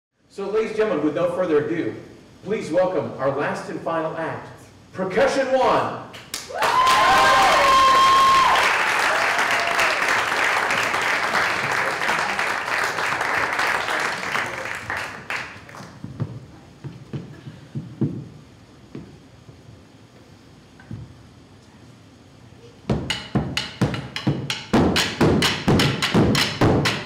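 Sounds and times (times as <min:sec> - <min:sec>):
audience applauding and cheering: 0:06.3 - 0:16.0.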